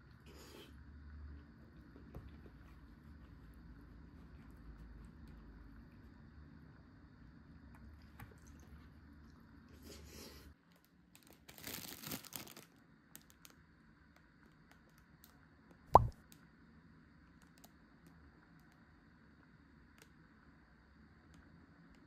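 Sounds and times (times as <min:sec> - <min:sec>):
plastic packaging crinkling: 0:11.2 - 0:12.7.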